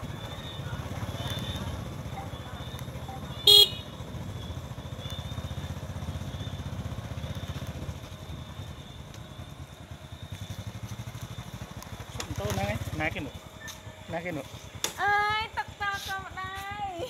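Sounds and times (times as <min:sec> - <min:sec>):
motorbike engine rumbling: 0:00.0 - 0:17.0
horn beep: 0:01.0 - 0:06.8.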